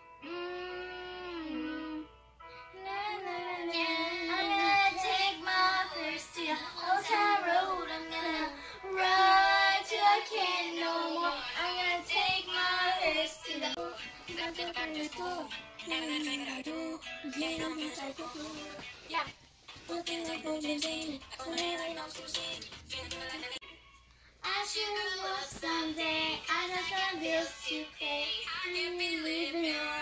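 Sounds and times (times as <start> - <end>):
music: 0.0 - 30.0
high singing voice: 0.2 - 2.1, 2.8 - 30.0.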